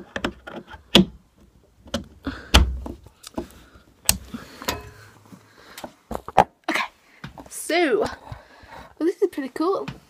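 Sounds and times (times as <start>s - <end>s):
plastic clicks and knocks: 0.0s - 1.2s, 1.8s - 3.5s.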